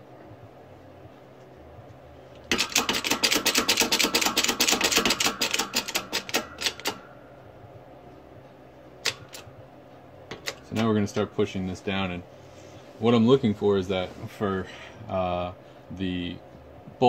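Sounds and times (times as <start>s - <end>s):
rapid mechanical clicking: 2.4s - 7.0s.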